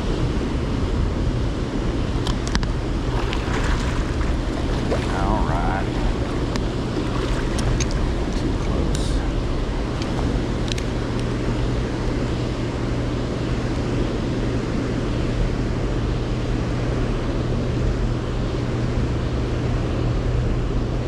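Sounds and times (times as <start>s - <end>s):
low hum: 1.0s - 21.0s
rushing churning water: 2.1s - 14.5s.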